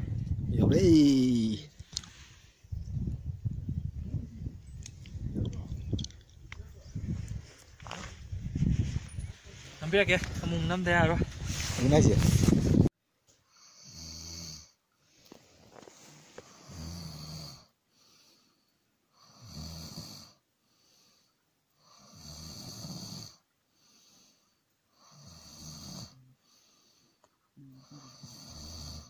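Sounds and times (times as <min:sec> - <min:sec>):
man snoring: 0:13.5 - 0:14.8, 0:16.5 - 0:18.2, 0:19.1 - 0:20.4, 0:21.8 - 0:27.0, 0:27.6 - 0:29.0
soft breaths: 0:15.0 - 0:19.5, 0:20.6 - 0:22.2, 0:23.6 - 0:25.2, 0:26.1 - 0:28.5.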